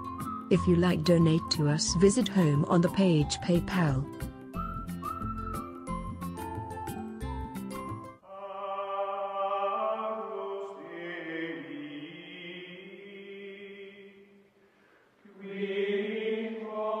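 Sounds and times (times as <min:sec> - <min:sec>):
chant-like vocal music: 0:08.2 - 0:14.5, 0:15.2 - 0:17.0.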